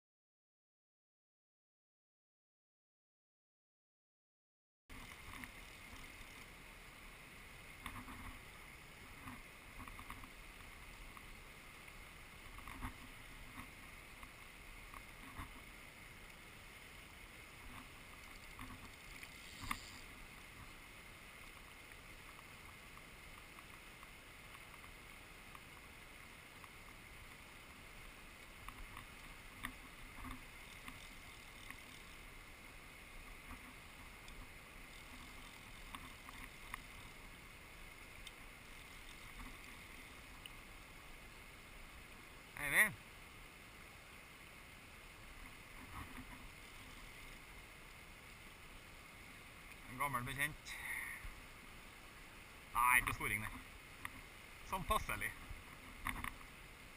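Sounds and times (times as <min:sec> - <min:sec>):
small knocks and clicks: 0:56.0 - 0:56.5.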